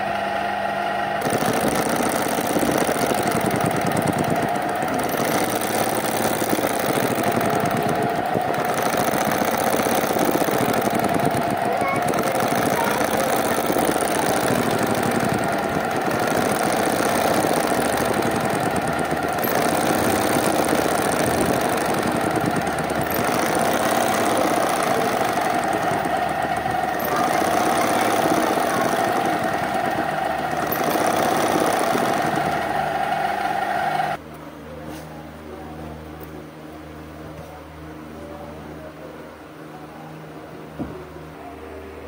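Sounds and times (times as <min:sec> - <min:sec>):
sewing machine running: 0:01.0 - 0:34.2.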